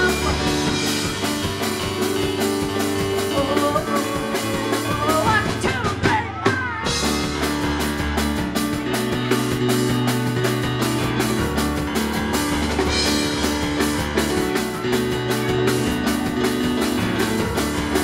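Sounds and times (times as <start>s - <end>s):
woman singing: 0.0s - 1.0s, 3.2s - 7.1s
live rock band: 0.0s - 18.0s.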